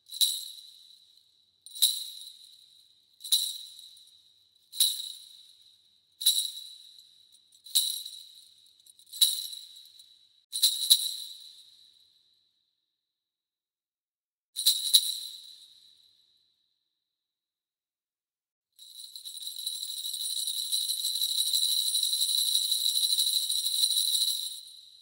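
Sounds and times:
bell tree jangling: 0:18.9 - 0:25.0.

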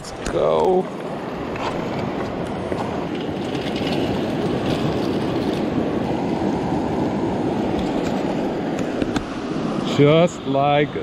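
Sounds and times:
river rushing: 0:00.0 - 0:11.0.

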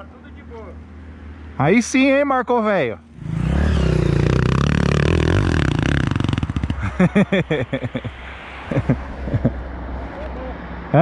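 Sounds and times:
dirt bike engine revving: 0:03.1 - 0:08.0.

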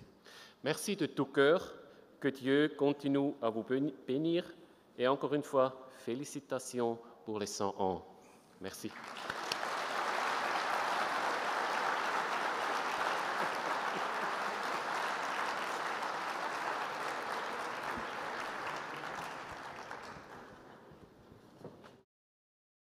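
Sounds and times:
audience applauding: 0:08.8 - 0:21.1.

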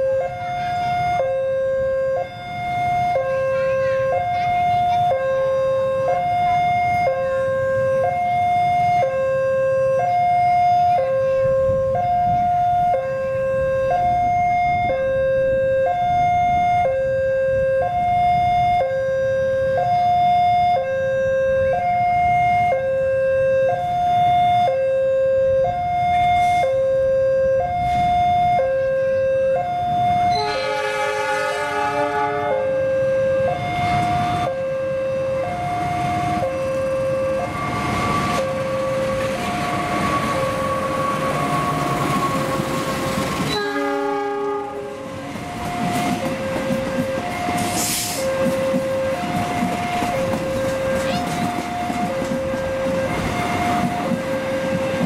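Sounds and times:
diesel locomotive rumble: 0:00.0 - 0:20.2, 0:29.7 - 0:55.0
level crossing alarm two tones: 0:00.0 - 0:31.0
locomotive horn chord: 0:30.3 - 0:32.8, 0:43.5 - 0:45.0.

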